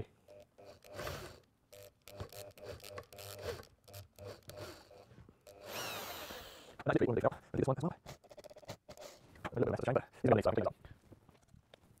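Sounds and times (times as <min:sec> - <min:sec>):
electric drill scraping into wood: 0:00.3 - 0:06.8.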